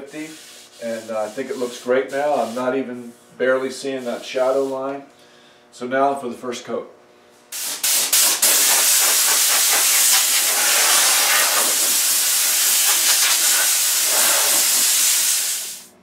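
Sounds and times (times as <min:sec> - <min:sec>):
air blow gun hissing: 0:07.6 - 0:15.9.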